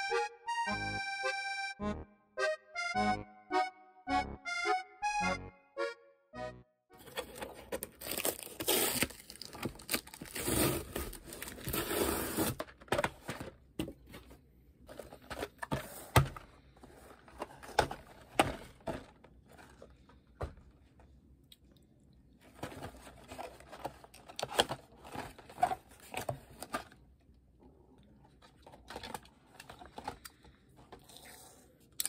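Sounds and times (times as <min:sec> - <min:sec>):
cardboard and paper rustling: 0:07.0 - 0:20.8, 0:22.4 - 0:27.0, 0:28.2 - 0:31.2.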